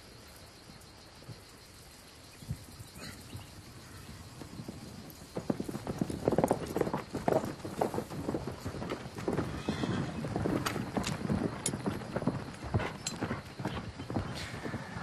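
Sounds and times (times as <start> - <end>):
horse hooves clip-clopping: 0.0 - 15.0
horse whinnying: 9.4 - 10.2, 14.2 - 15.0.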